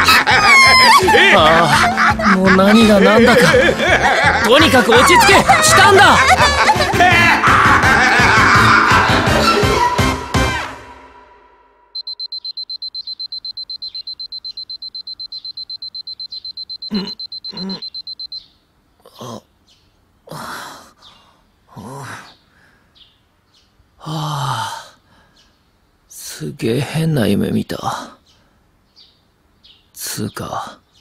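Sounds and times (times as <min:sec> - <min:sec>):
alarm clock beeping: 0:12.0 - 0:18.4
man groaning and sighing: 0:16.9 - 0:17.8, 0:19.0 - 0:19.5, 0:24.0 - 0:25.0.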